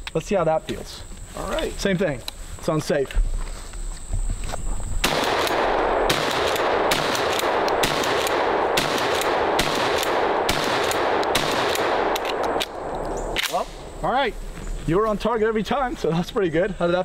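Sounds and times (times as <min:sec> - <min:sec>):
shotgun pump action: 0:05.0 - 0:13.7
shotgun shots: 0:05.0 - 0:13.9.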